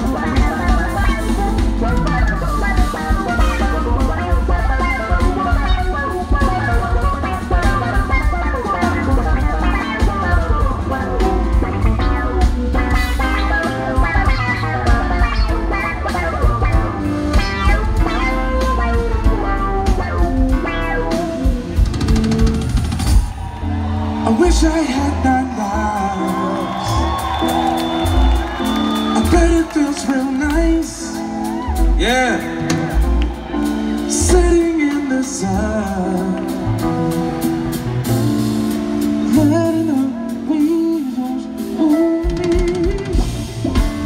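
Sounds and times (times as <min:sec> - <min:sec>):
electric bass lines: 0:00.0 - 0:23.1
live band playing: 0:00.0 - 0:44.0.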